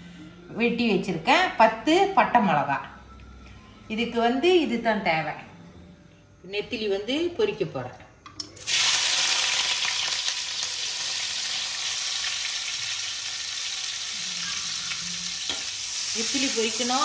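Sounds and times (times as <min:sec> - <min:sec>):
fish frying in hot oil: 0:08.6 - 0:17.0.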